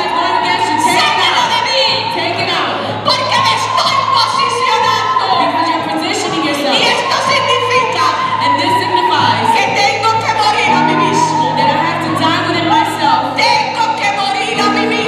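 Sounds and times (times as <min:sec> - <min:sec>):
low bass notes: 0:07.3 - 0:15.0.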